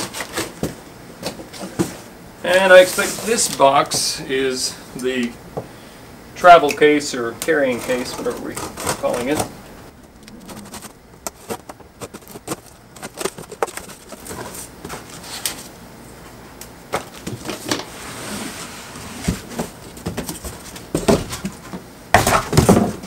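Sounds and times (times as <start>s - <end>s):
knife slitting packing tape: 0.0s - 0.6s
cardboard and foam scraping: 7.8s - 15.4s
cardboard flaps rustling: 8.0s - 15.7s.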